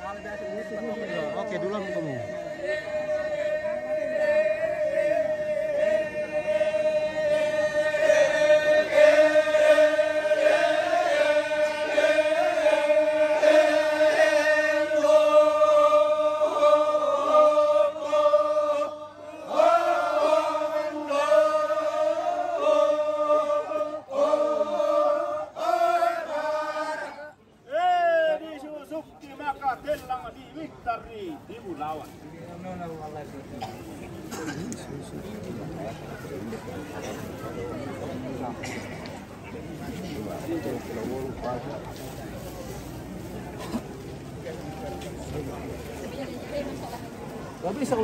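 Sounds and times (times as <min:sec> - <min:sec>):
group chanting in unison: 0:00.3 - 0:27.4.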